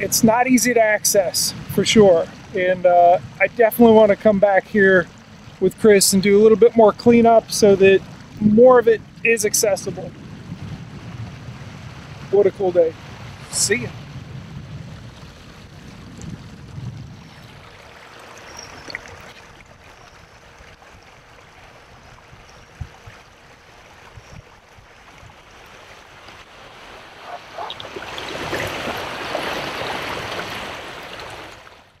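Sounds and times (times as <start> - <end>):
river water rushing: 11.0 - 14.0, 17.3 - 32.0.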